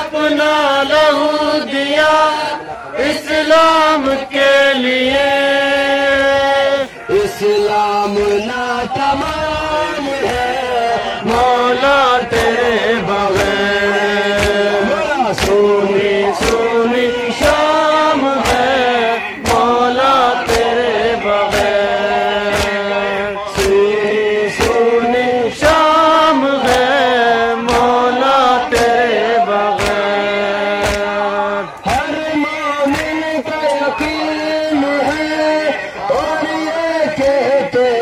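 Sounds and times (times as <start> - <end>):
men chanting in chorus: 0.0 - 38.0
chest-beating slaps: 29.8 - 31.2.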